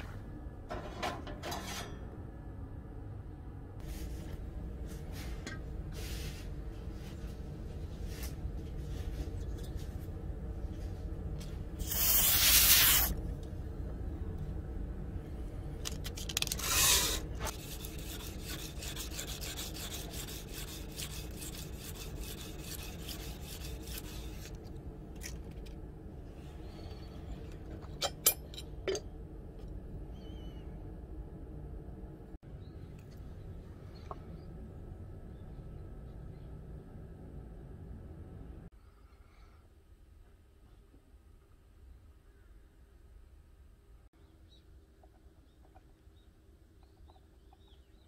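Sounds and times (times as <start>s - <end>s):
abrasive scraping on metal blade: 1.4s - 2.1s, 11.8s - 13.1s
short bursts of hiss: 11.8s - 13.1s.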